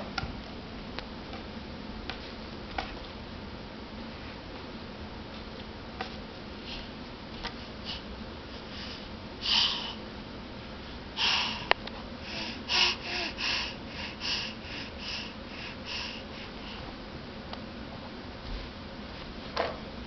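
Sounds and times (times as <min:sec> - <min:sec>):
baby making breathy puffs: 0:11.2 - 0:16.8.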